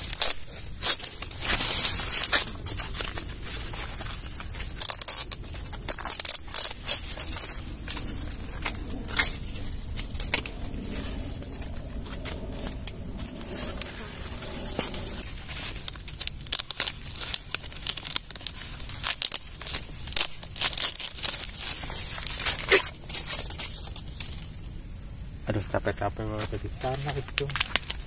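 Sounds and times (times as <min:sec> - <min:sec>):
corn stalks and husks rustling: 0:00.0 - 0:24.6, 0:25.5 - 0:28.0
corn ears snapping off: 0:26.3 - 0:28.0.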